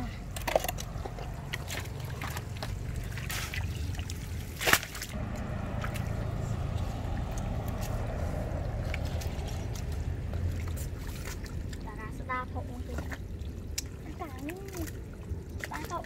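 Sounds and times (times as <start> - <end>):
mud squelching: 0.0 - 16.0
steady low rumble: 0.0 - 16.0
sharp smack in water: 4.6 - 5.1.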